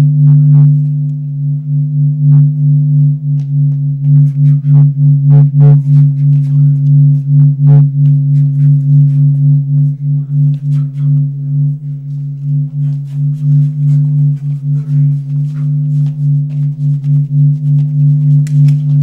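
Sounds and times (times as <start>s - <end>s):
low pulsing drone: 0.0s - 19.0s
footsteps on tiled floor: 5.7s - 7.3s, 12.0s - 19.0s.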